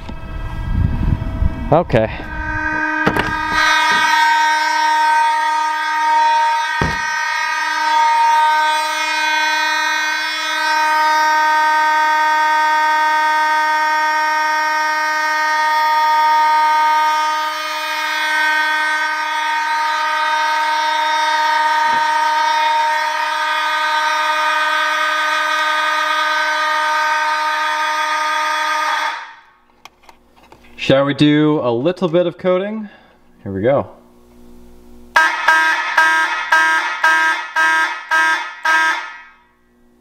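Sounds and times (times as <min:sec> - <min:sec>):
electronic fire alarm horn: 0:00.0 - 0:29.6, 0:35.1 - 0:39.8
short knock: 0:06.8 - 0:07.1.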